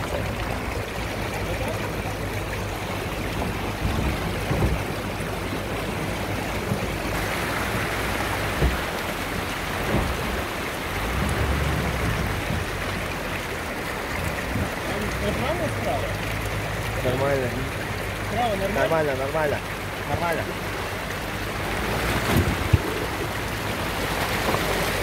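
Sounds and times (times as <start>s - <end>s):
engine rumble: 0.0s - 25.0s
water rushing and splashing: 0.0s - 25.0s
wheels thumping over rocks: 2.9s - 13.0s.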